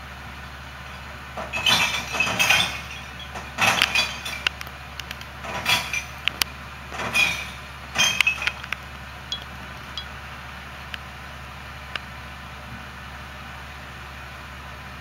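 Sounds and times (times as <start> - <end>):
truck engine idling: 0.0 - 15.0
recyclables clattering into truck: 0.9 - 10.1.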